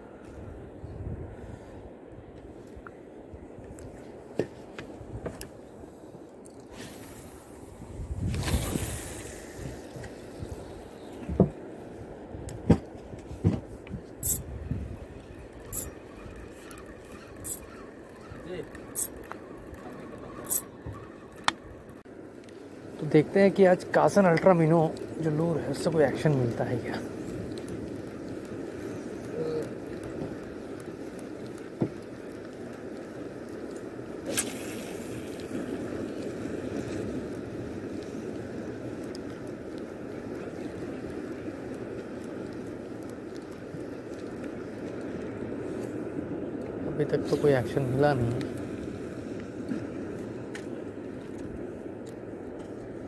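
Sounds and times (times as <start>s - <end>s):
small boat engine rumble: 0.0s - 53.0s
water noise: 0.0s - 53.0s
wind: 0.0s - 53.0s
brief high hissing bursts: 14.2s - 14.4s.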